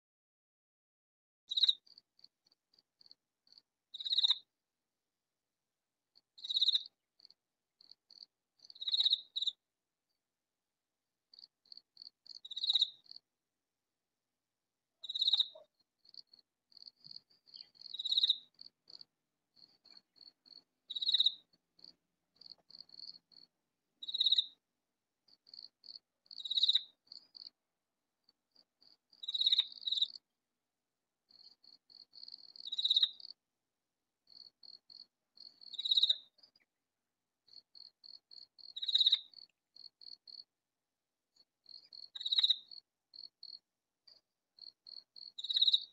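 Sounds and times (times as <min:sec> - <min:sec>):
katydid calling: 0:08.7 - 0:09.6, 0:15.0 - 0:15.7, 0:17.5 - 0:18.6, 0:20.9 - 0:21.4, 0:26.3 - 0:26.9, 0:29.2 - 0:30.2, 0:32.6 - 0:33.3, 0:35.6 - 0:36.2, 0:38.6 - 0:39.4, 0:42.0 - 0:42.8.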